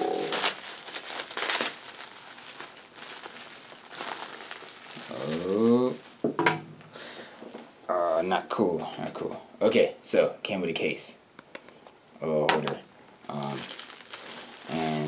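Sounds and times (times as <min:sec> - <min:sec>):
packaging crinkling: 0:00.0 - 0:06.4, 0:12.9 - 0:15.0.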